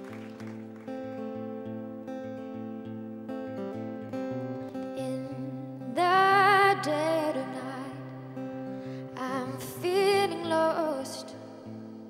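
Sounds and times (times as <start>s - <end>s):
acoustic guitar picking: 0.0s - 12.0s
woman singing: 4.8s - 8.4s, 9.0s - 12.0s.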